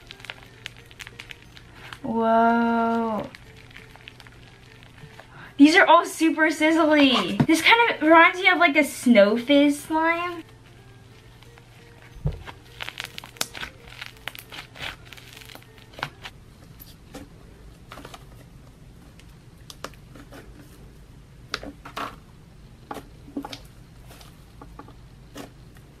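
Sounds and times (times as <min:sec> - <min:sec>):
slime crackling: 0:00.0 - 0:05.4, 0:10.0 - 0:16.3
room fan humming: 0:00.0 - 0:26.0.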